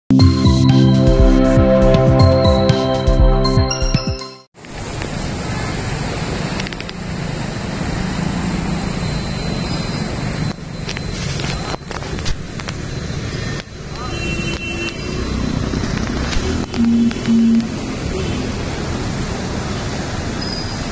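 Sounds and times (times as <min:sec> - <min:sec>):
traffic: 0:04.6 - 0:20.9.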